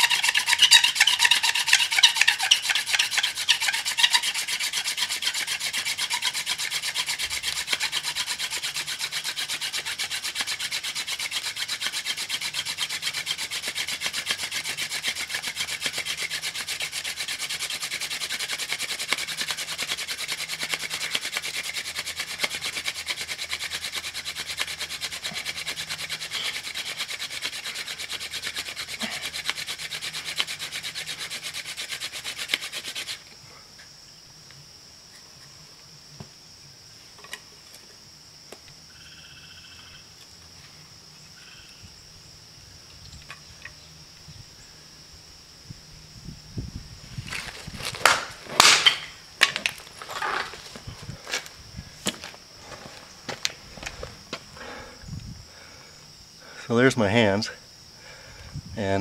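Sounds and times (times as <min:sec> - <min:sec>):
wooden spindle rubbing fireboard: 0:00.0 - 0:33.2, 0:47.1 - 0:54.0.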